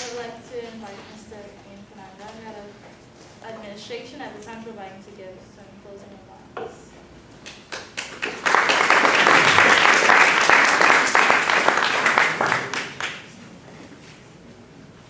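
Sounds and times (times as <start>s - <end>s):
audience applauding: 7.7s - 13.4s.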